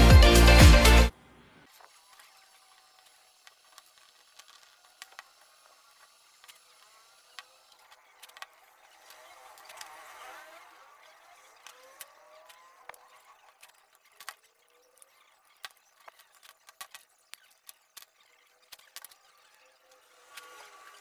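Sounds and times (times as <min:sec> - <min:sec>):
plastic scraping and rubbing: 0:01.7 - 0:21.0
plastic housing parts tapping: 0:11.6 - 0:19.2
screwdriver clicks and taps: 0:15.6 - 0:18.1.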